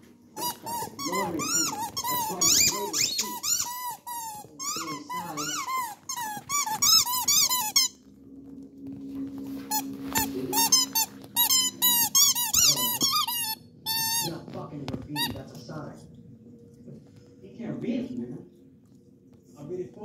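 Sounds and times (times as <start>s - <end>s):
squeaky toy squeaking: 0.4s - 8.0s, 9.7s - 14.4s.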